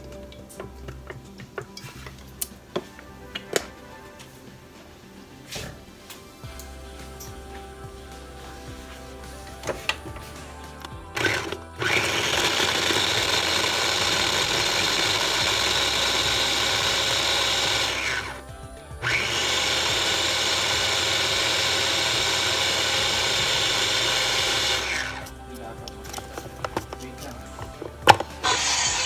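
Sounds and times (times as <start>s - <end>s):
electric mini chopper motor: 11.2s - 18.4s, 19.0s - 25.2s, 28.0s - 29.0s.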